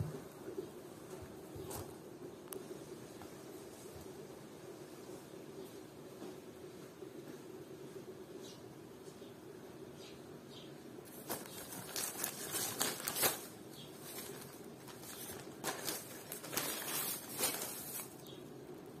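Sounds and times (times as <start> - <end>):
plastic wrapping crinkling: 11.1 - 18.4.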